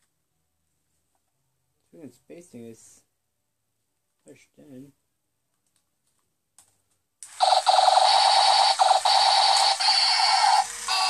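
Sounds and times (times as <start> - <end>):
toy robot electronic tone: 7.4 - 11.0.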